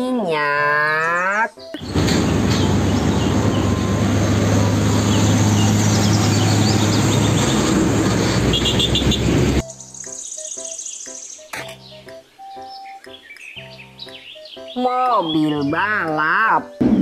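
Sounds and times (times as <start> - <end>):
diesel truck engine droning: 1.8 - 9.6
road and tyre noise: 1.8 - 9.6
birds chirping faintly: 8.5 - 16.8.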